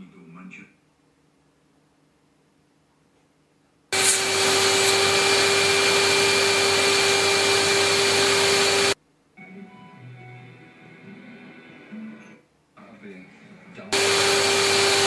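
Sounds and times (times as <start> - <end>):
vacuum cleaner running: 3.9 - 9.0, 13.9 - 15.0.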